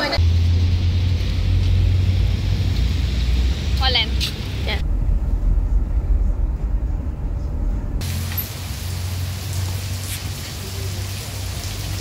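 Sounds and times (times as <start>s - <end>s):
car cabin road rumble: 0.0s - 10.9s
heavy rain hiss: 8.0s - 12.0s.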